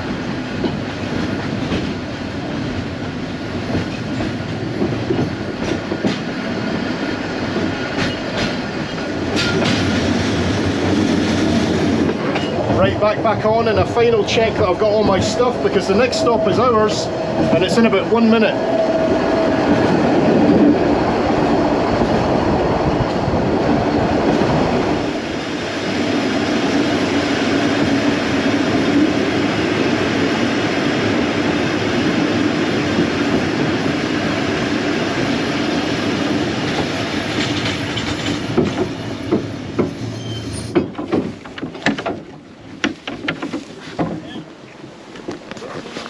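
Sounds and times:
train wheels rumbling on rail: 0.0s - 46.0s
sharp knocks: 40.7s - 44.3s.

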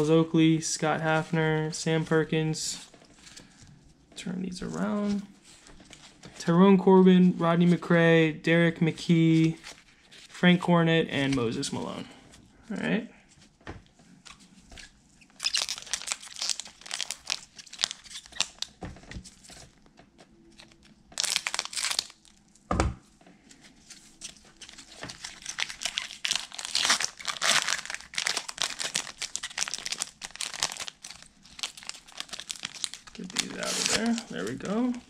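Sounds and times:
foil wrapper crinkling: 15.3s - 22.4s, 24.2s - 35.0s.

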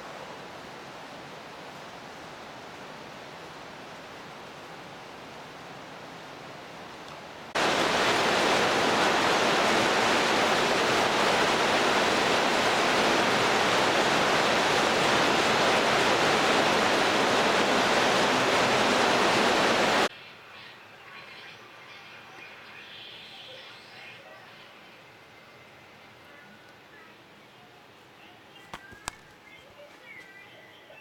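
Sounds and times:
loud rushing hiss: 7.6s - 20.1s.

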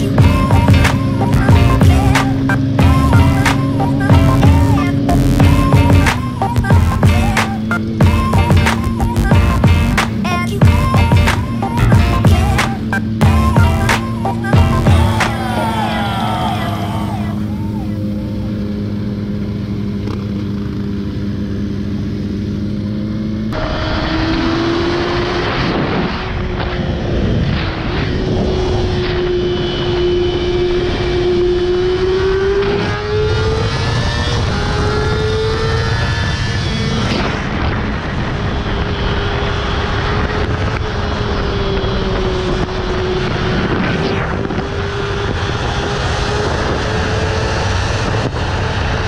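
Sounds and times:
motorcycle engine running: 0.0s - 24.9s
wind noise on microphone: 23.8s - 49.0s.

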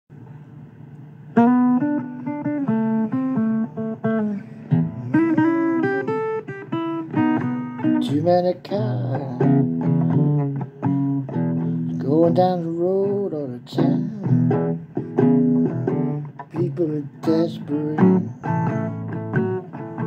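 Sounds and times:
blues guitar picking: 1.0s - 20.0s
person singing: 4.3s - 6.4s, 7.2s - 11.0s, 11.6s - 19.1s.

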